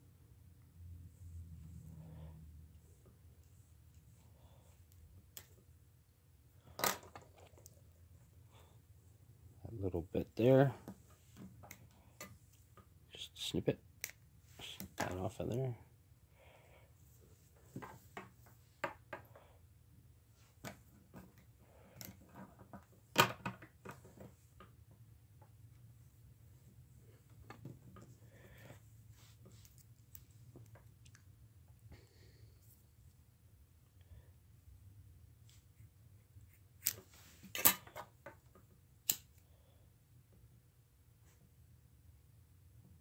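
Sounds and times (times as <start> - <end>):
scissors snipping cord: 39.0 - 39.4.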